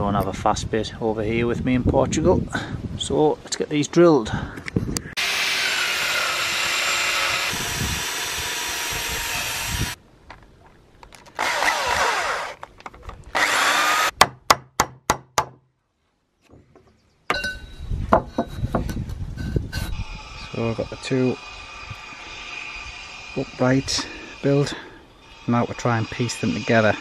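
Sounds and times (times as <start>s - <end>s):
drill with hole saw cutting wood: 5.2s - 10.0s, 11.4s - 12.6s, 13.3s - 14.1s, 20.0s - 27.0s.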